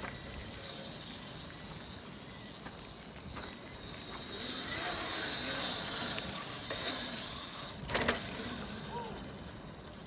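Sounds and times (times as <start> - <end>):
electric motorbike motor whine: 0.0 - 10.0
tyre and road noise: 0.0 - 10.0.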